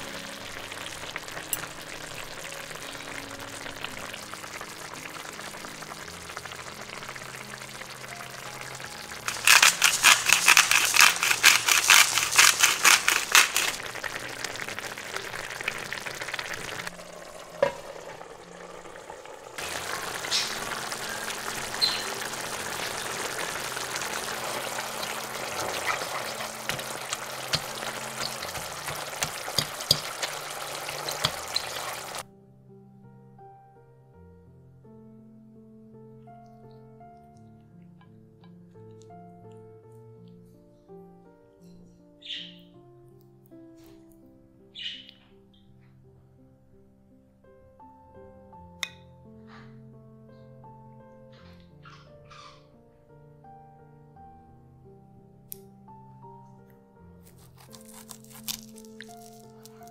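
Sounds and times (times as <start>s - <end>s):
meat sizzling in a frying pan: 0.0s - 32.2s
rhythmic seasoning strokes over pan: 0.0s - 32.2s
fat popping: 21.8s - 32.2s.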